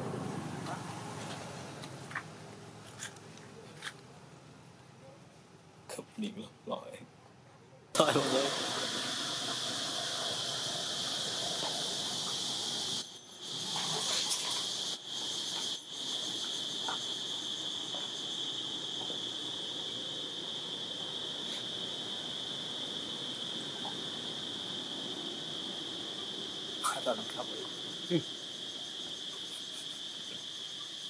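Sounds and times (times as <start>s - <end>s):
high-pitched insect drone: 8.0s - 31.0s.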